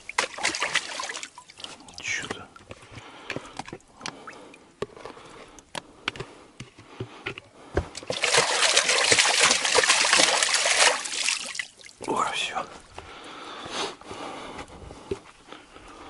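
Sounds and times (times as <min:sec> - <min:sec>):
water splashing: 0:00.0 - 0:04.6, 0:08.0 - 0:12.2.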